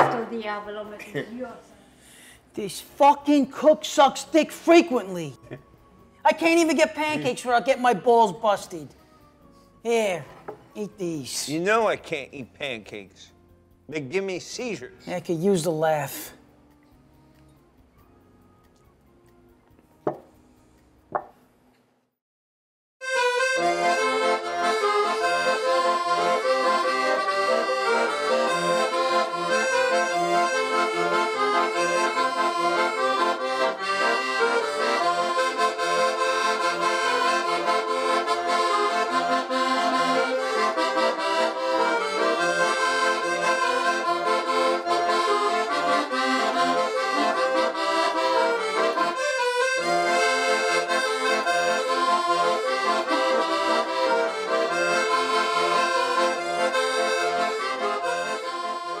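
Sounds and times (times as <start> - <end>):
instrumental music with steady beat: 23.0 - 59.0.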